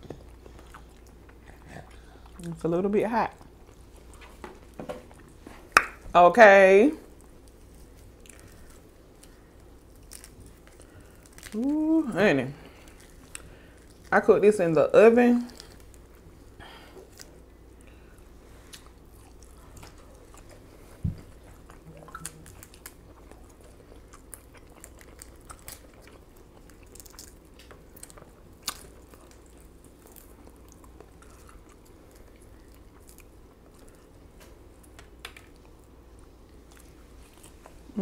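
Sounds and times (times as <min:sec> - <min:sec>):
chewing and mouth clicks: 0:07.1 - 0:11.7, 0:17.1 - 0:37.8
sausage being torn: 0:07.1 - 0:11.9, 0:15.4 - 0:37.8.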